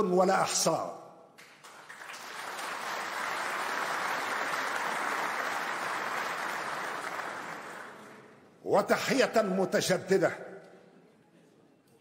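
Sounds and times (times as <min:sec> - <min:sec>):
audience applauding: 0:01.4 - 0:08.3.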